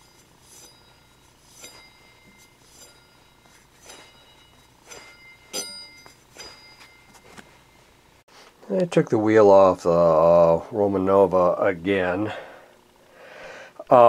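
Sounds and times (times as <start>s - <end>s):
metallic clinks of spinning wheel: 0.0s - 7.4s.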